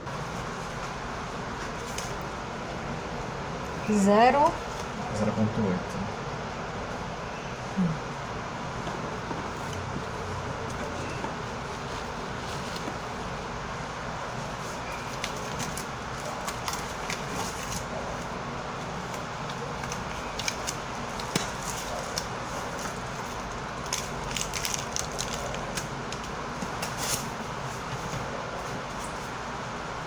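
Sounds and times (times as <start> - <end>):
steady background hiss: 0.0 - 30.0
gloved hands rustling supplies: 14.3 - 29.4.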